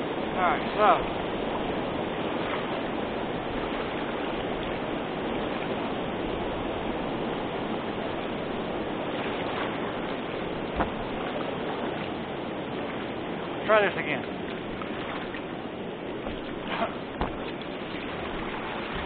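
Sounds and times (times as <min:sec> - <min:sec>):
water pouring over a dam: 0:16.2 - 0:19.0.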